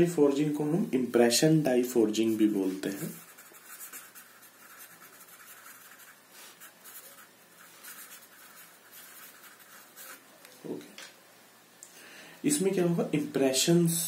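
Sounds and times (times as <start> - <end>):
pen scratching on paper: 2.8 - 10.2.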